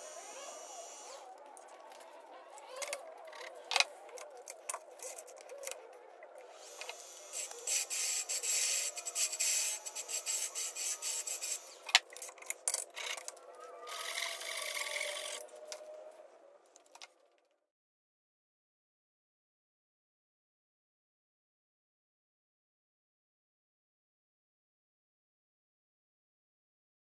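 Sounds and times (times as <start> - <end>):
lathe tool scraping hiss: 6.6 - 11.9.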